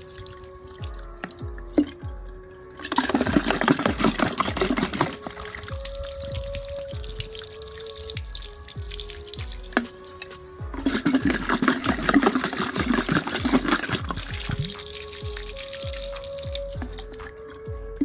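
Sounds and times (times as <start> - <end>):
background music with steady beat: 0.0 - 18.0
pebbles rattling in plastic bottle: 2.8 - 5.9, 10.8 - 17.2.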